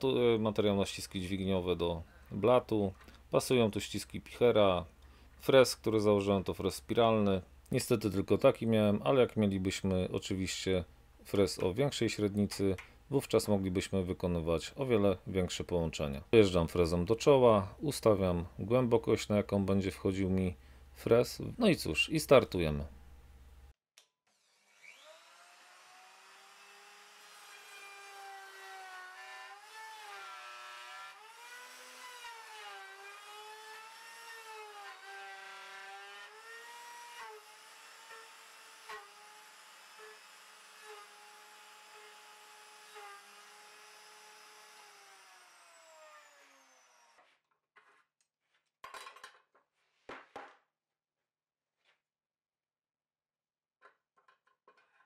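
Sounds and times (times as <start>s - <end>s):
router cutting wood: 24.3s - 47.3s.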